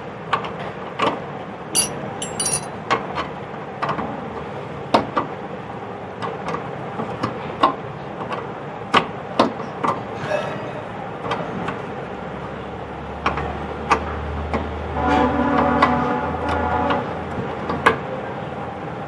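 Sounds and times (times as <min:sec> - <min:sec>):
metallic clicks and knocks: 0:01.8 - 0:02.7.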